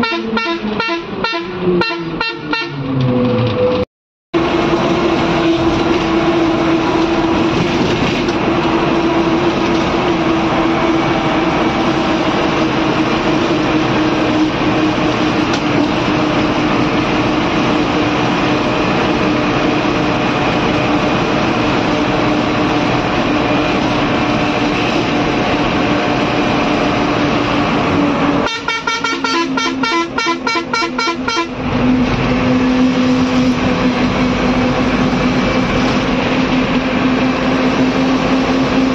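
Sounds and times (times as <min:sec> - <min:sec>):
horn pulsing: 0:00.0 - 0:03.0, 0:28.4 - 0:34.7
bus engine and road noise: 0:00.0 - 0:38.9.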